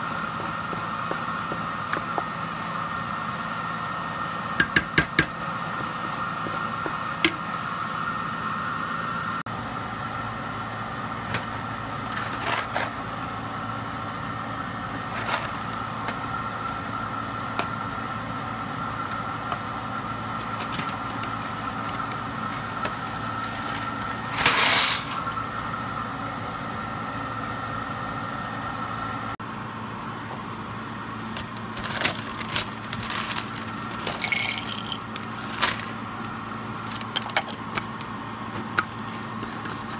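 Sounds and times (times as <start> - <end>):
kitchen appliance humming: 0.0 - 39.9
plastic snack bag crinkling: 31.5 - 36.0
utensils clinking on cookware: 34.1 - 35.0.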